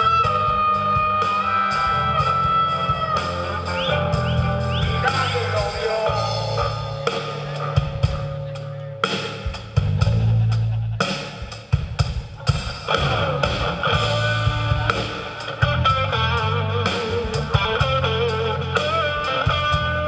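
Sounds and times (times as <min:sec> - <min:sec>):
blues-rock band playing: 0:00.0 - 0:20.0
harmonica solo: 0:00.2 - 0:08.8.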